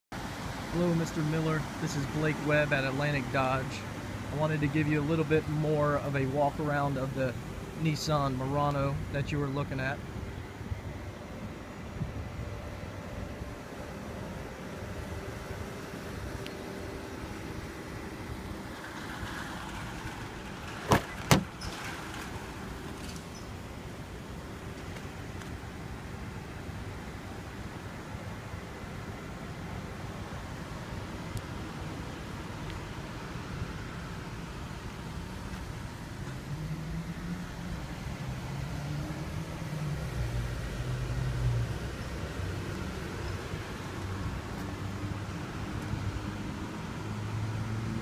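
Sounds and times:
vehicle engine humming: 0.2 - 48.0
steady low rumble: 1.6 - 21.2.

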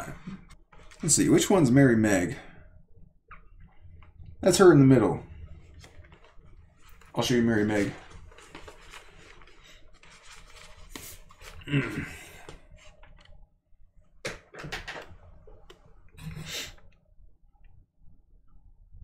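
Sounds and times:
book pages turning: 5.6 - 13.3.

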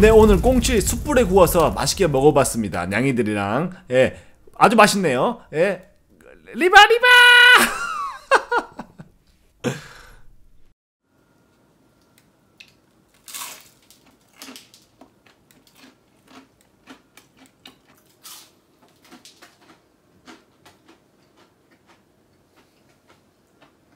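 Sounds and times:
person chewing crunchy snack: 13.1 - 23.9.

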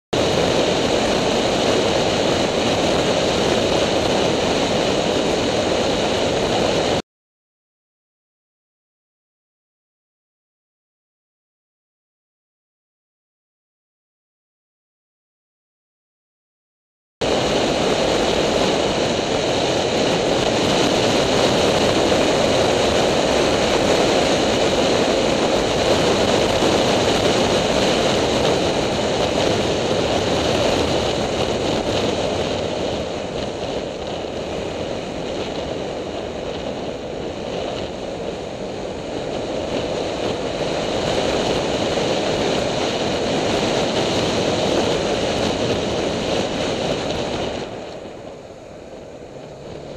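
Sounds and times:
motorbike engine and road noise: 0.2 - 7.0, 17.2 - 49.9
wind rushing over microphone: 0.2 - 7.0, 17.2 - 49.9.

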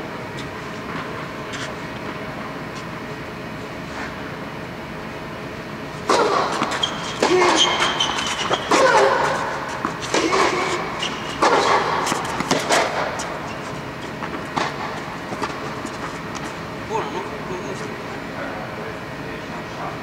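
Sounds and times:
steady fan hum: 0.0 - 20.0
tennis balls struck with rackets: 6.0 - 15.8.

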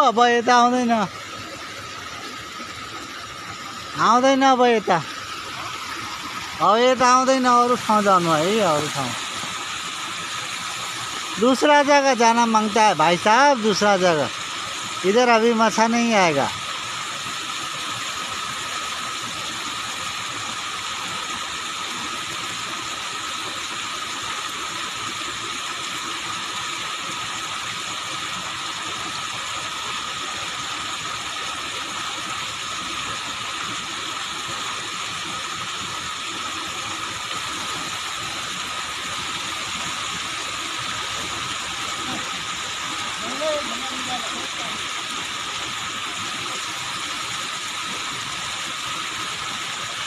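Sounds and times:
steady hiss: 4.0 - 16.5.

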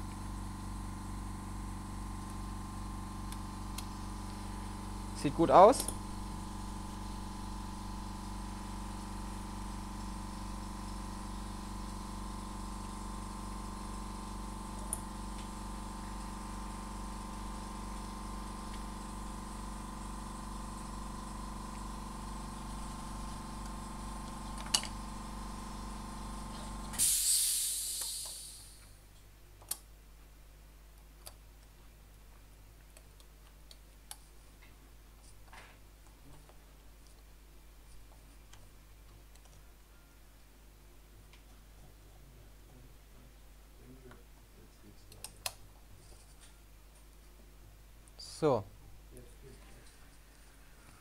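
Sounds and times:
air compressor motor humming: 0.0 - 29.0
burst of hissing air: 26.9 - 28.9.

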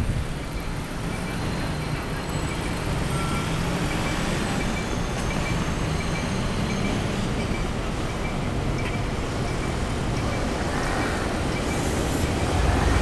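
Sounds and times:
cars passing: 0.0 - 13.0
faint high beep: 0.6 - 10.5.

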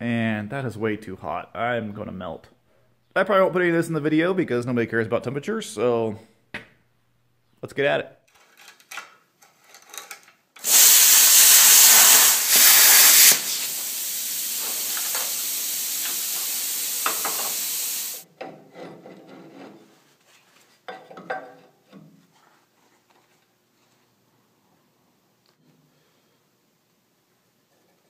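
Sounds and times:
plasma cutter hissing: 10.6 - 18.2
rush of cooling air: 10.6 - 18.2.

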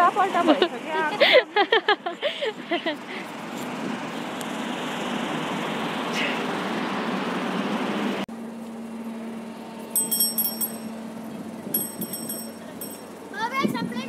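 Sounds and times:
high-pitched clinks: 10.0 - 11.0, 11.8 - 13.2.

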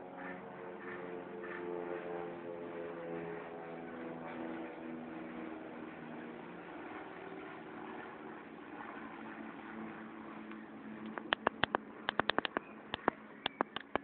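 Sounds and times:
constant rushing noise: 0.0 - 14.0
distant aircraft engine drone: 0.0 - 14.0.

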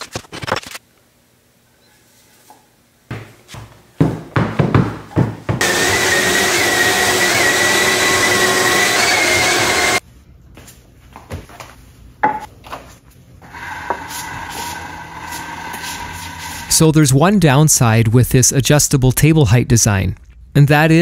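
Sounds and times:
power tool cutting wood: 5.6 - 10.0, 13.5 - 16.8.

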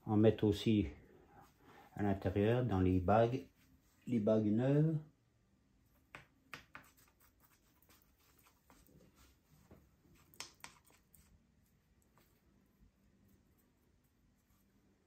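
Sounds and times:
brush clicking and scraping: 5.9 - 14.8.

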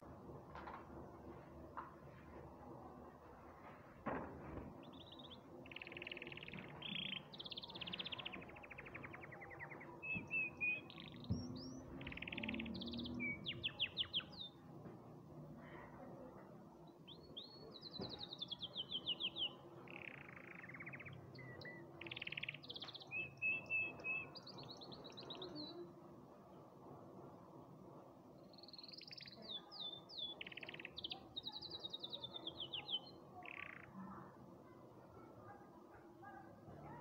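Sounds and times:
canary singing: 4.9 - 14.5, 18.2 - 25.8, 28.6 - 33.9.

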